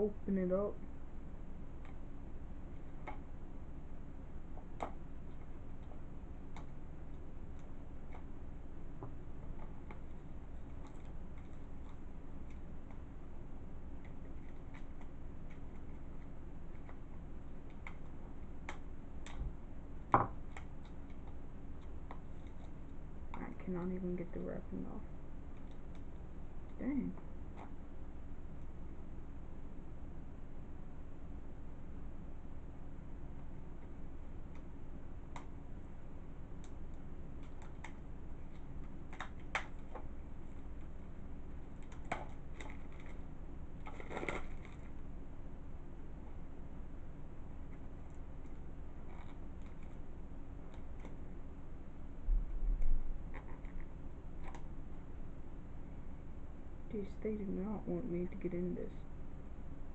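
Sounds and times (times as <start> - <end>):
plastic crinkling: 41.7 - 45.0.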